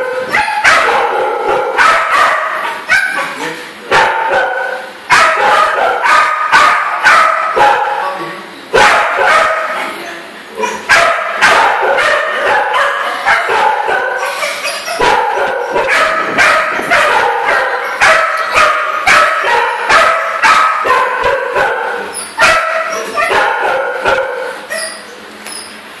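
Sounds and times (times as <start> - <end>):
young dog yelping and whining: 12.0 - 21.0, 21.6 - 23.5, 24.2 - 25.2.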